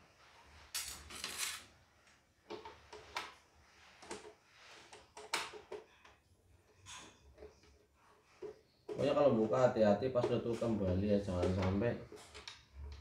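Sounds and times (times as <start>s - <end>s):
scraping rustle on workbench: 0.1s - 1.9s.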